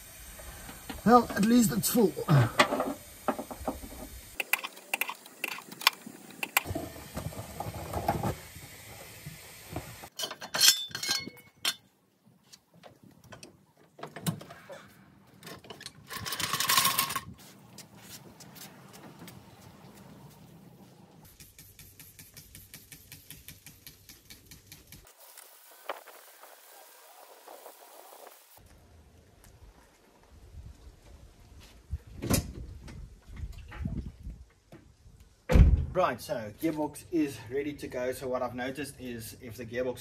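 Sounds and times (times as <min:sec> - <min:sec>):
hiss: 0:00.0 - 0:10.1, 0:17.8 - 0:28.6
tools and parts clattering: 0:10.1 - 0:11.9, 0:13.3 - 0:17.4.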